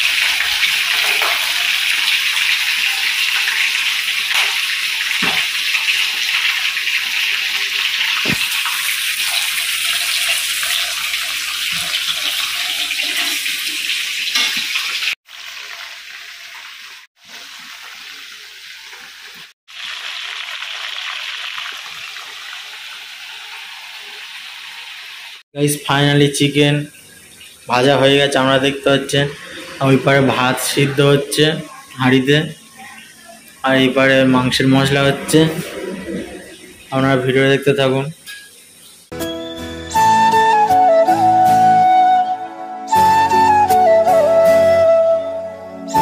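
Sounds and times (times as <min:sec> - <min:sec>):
chicken deep-frying in oil: 0:00.0 - 0:39.1.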